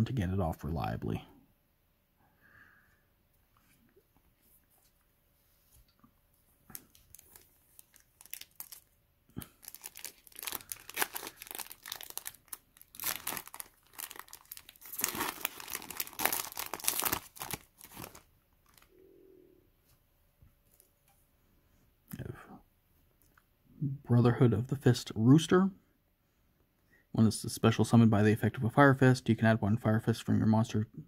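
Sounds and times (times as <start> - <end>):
foil wrapper crinkling and tearing: 6.7 - 18.9.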